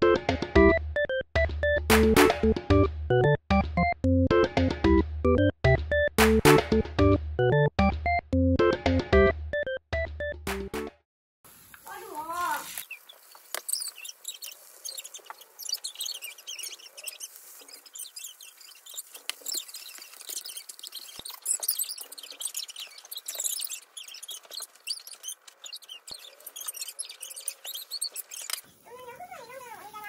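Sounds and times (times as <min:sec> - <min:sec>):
food sizzling in a pan: 0:11.5 - 0:14.0
small crackling pops: 0:11.6 - 0:28.7.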